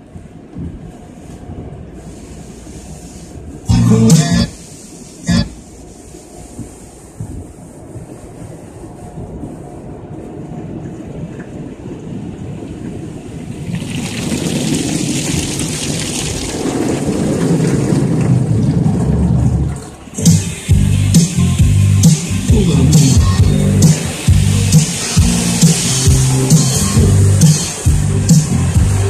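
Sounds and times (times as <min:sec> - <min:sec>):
car wash rumble of water and machinery: 0:00.0 - 0:29.0
water spray hissing on car: 0:02.0 - 0:10.4, 0:20.0 - 0:29.0.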